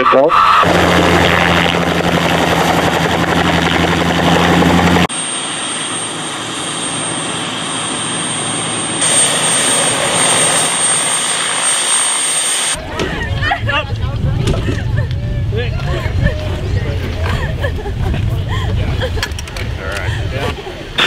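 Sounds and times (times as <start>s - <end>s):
helicopter rotor noise: 0.0s - 14.0s
high turbine whine: 0.0s - 18.6s.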